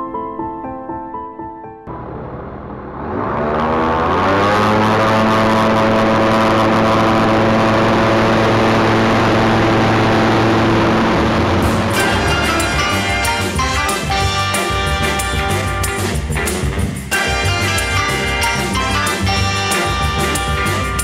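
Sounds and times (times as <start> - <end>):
light aircraft engine and propeller: 3.2 - 14.2.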